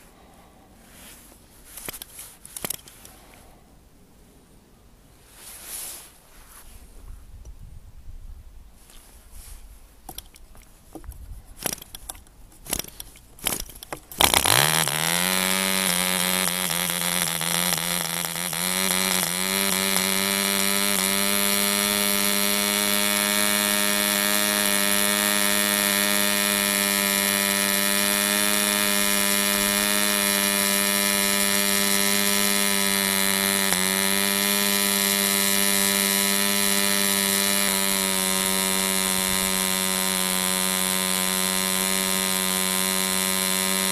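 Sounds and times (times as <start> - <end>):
model engine pops: 11.0 - 14.5
model engine running high-pitched: 14.2 - 43.9.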